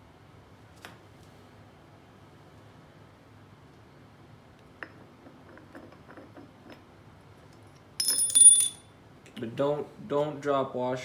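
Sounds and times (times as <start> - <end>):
loud ringing metal clink: 8.0 - 8.9.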